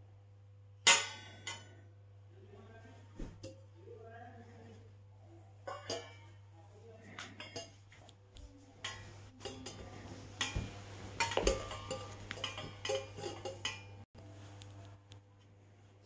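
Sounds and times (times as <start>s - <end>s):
metal utensils clinking: 5.6s - 6.4s, 7.1s - 8.0s, 8.8s - 14.0s.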